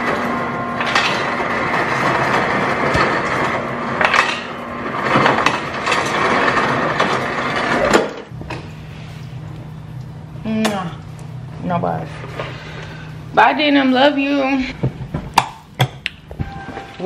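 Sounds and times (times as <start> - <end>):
refrigerator water dispenser running: 0.0 - 9.1.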